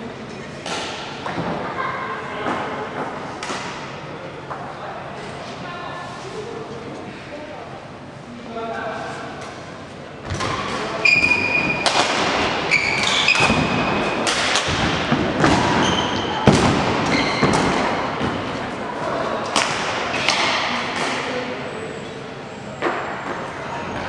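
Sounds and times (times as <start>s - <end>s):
shoe squeaks: 11.0s - 11.8s, 12.7s - 14.2s, 15.6s - 16.4s, 17.0s - 17.9s.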